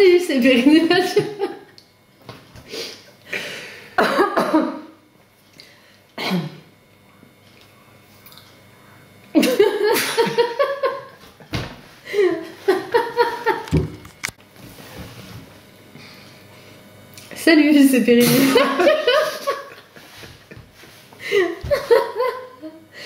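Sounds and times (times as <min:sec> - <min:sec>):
man and woman laughing: 0:00.9 - 0:01.7, 0:09.4 - 0:11.3, 0:12.1 - 0:13.8, 0:18.2 - 0:22.8
man and woman stifling laughter: 0:09.4 - 0:11.5, 0:12.1 - 0:13.8, 0:18.2 - 0:22.8.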